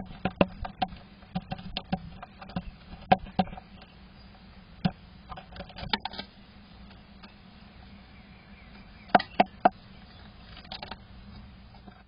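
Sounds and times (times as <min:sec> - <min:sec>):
bird tapping and scratching on wood: 0:00.0 - 0:04.0, 0:04.8 - 0:06.3, 0:09.1 - 0:12.0.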